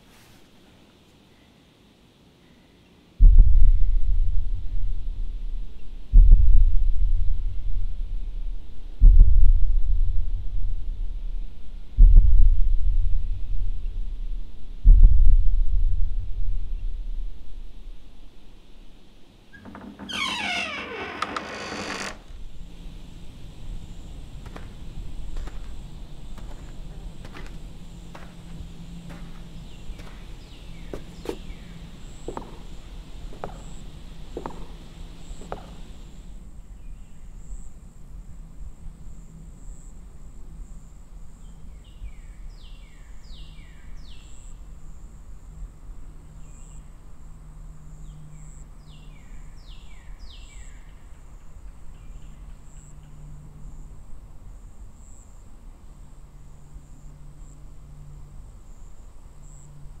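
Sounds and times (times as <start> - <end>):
soft knocks like footsteps: 24.4 - 36.2.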